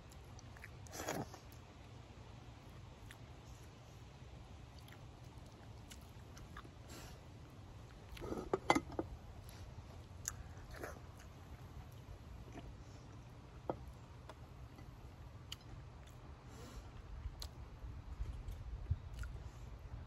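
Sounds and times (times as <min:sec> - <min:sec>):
person chewing: 0:00.0 - 0:01.7, 0:04.7 - 0:07.0, 0:09.6 - 0:16.3, 0:17.0 - 0:19.4
low background hum: 0:00.0 - 0:20.0.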